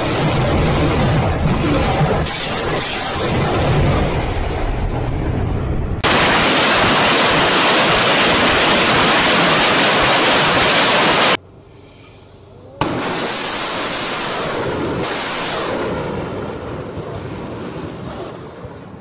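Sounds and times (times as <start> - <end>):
rocket launchers firing: 0.0 - 4.5, 6.0 - 11.4, 12.8 - 18.8.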